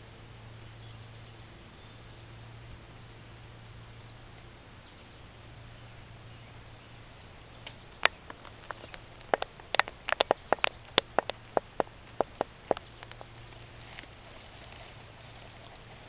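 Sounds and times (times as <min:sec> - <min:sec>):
rapid sharp clicks: 0:07.6 - 0:13.4.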